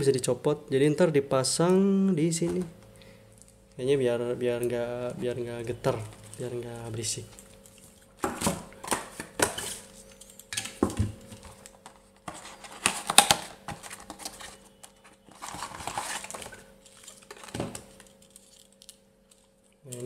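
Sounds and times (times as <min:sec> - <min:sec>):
packaging rustling: 0:05.8 - 0:20.0.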